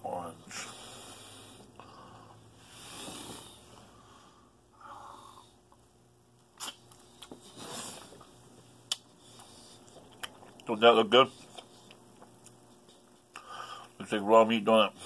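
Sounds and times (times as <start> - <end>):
man breathing through nose: 0.5 - 5.6, 13.4 - 14.0.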